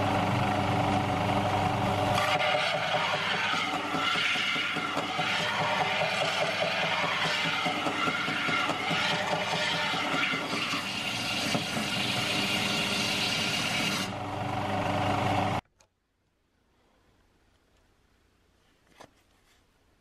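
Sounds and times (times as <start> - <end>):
belt sander grinding metal: 2.2 - 14.2.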